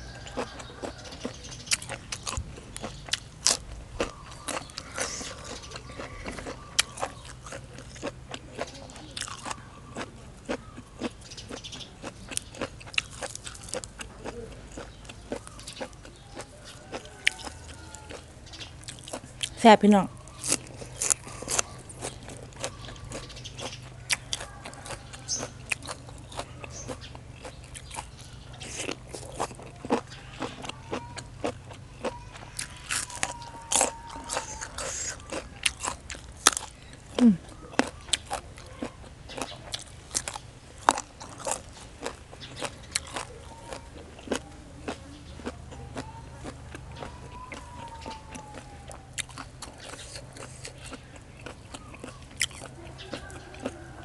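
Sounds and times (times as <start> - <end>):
crunchy chewing: 0.0 - 54.0.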